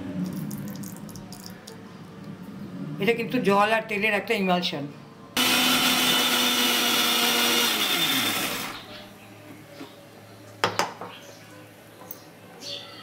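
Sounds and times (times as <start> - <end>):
mixer grinder running: 5.4 - 8.9.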